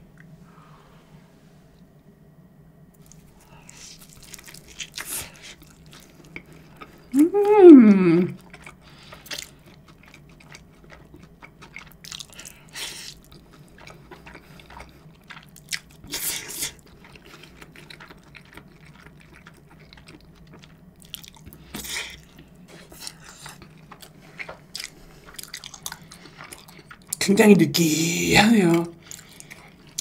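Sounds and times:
chewing with wet mouth clicks: 3.9 - 7.1, 8.4 - 27.2, 29.0 - 30.0.

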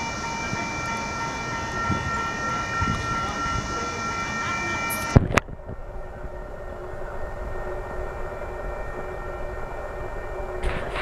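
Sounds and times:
hum: 4.9 - 11.0.

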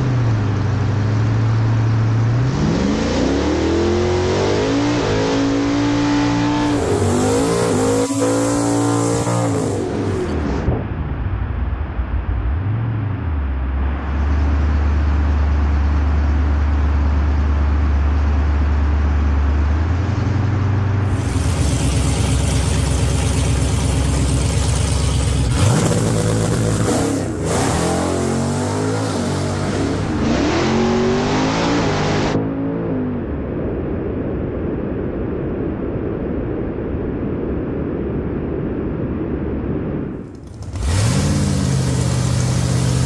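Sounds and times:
car engine revving: 0.0 - 10.7, 21.0 - 32.9, 40.3 - 43.0
engine idling drone: 5.8 - 32.4.

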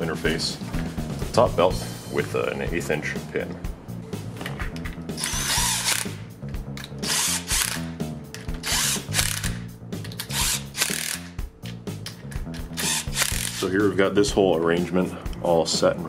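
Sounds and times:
background music: 0.0 - 16.0
cordless drill bursts: 5.2 - 6.2, 7.0 - 7.8, 8.6 - 9.6, 10.3 - 11.3, 12.8 - 13.6.

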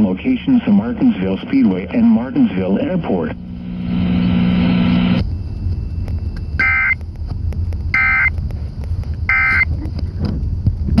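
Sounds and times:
steady low rumble: 0.0 - 11.0
buzzy digital data chirps: 4.9 - 7.1, 7.9 - 8.4, 9.3 - 9.7.

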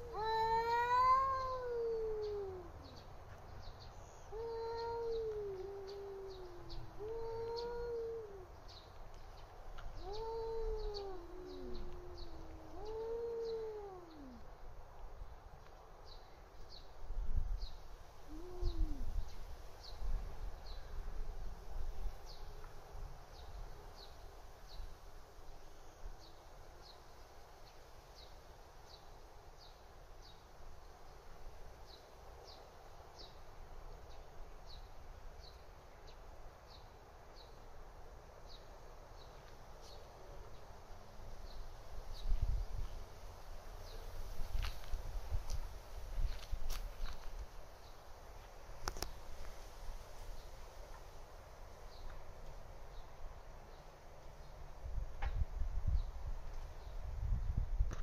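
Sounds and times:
cats yowling: 0.0 - 2.8, 4.3 - 8.5, 10.0 - 14.4.

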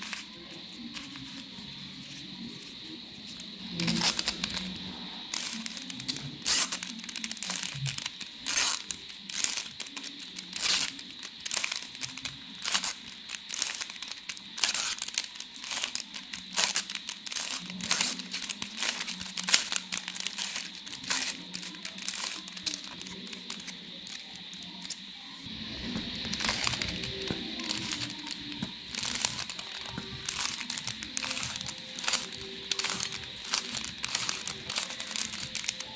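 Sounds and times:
puzzle cube clicking: 3.3 - 25.0, 26.0 - 35.9.

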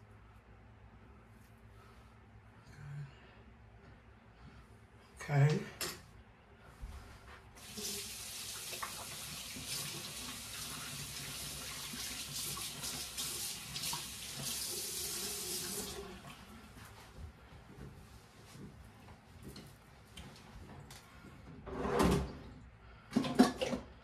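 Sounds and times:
tap water splashing into basin: 8.5 - 11.0.

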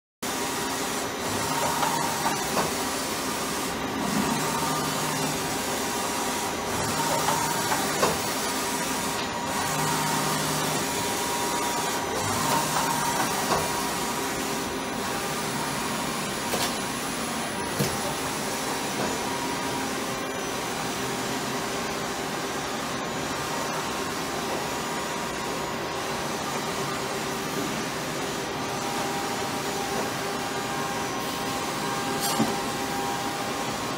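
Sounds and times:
machinery hum and hiss: 0.3 - 33.9.

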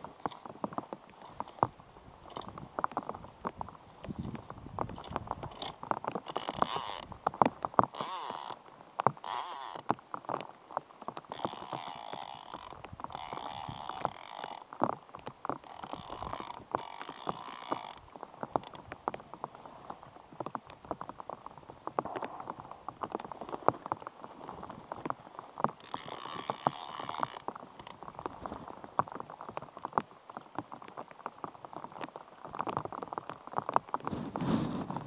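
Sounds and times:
fishing reel drag buzzing: 6.3 - 7.1, 8.0 - 8.6, 9.2 - 9.8, 11.3 - 14.6, 15.6 - 18.0, 25.8 - 27.9.

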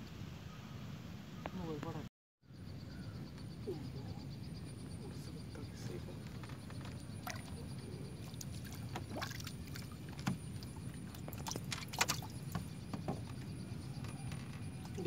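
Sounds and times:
water sloshing against boat hull: 5.6 - 15.0
knocks and taps on boat: 8.7 - 15.0.

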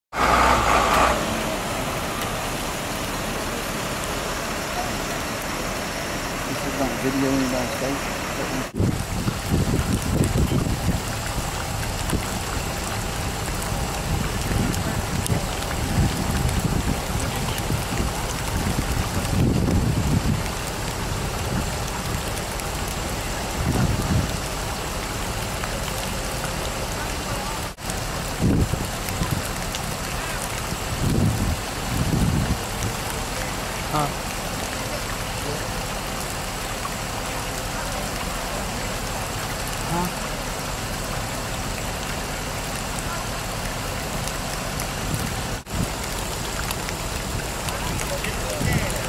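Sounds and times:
vehicle driving on flooded road: 0.1 - 49.0
low rumble: 0.2 - 29.7.

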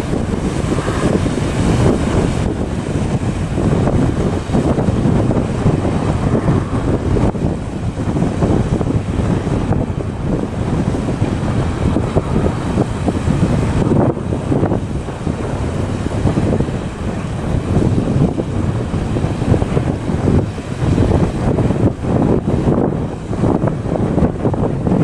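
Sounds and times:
wind buffeting microphone: 0.0 - 25.0.

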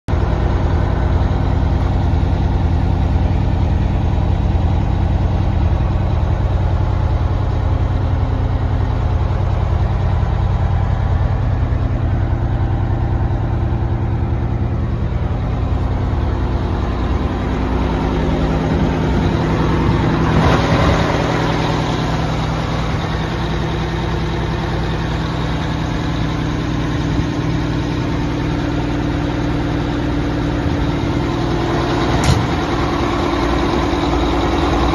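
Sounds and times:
diesel truck engine idling: 0.1 - 34.9.

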